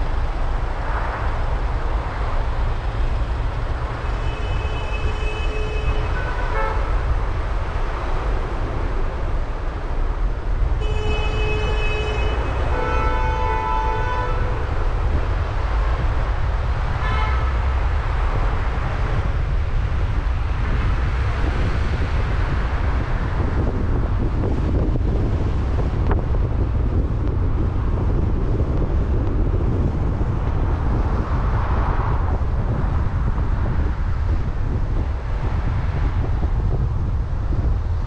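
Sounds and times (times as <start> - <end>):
car driving in traffic: 0.0 - 38.0
vehicle horn: 4.0 - 7.3, 10.7 - 15.1, 16.9 - 17.8.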